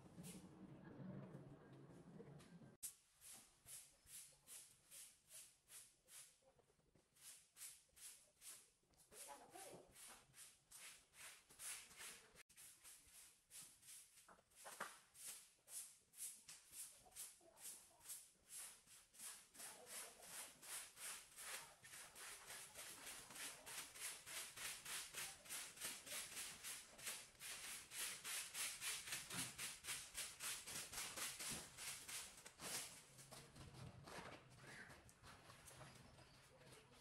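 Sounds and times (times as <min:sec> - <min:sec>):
broom sweeping tiled floor: 0:02.8 - 0:33.6.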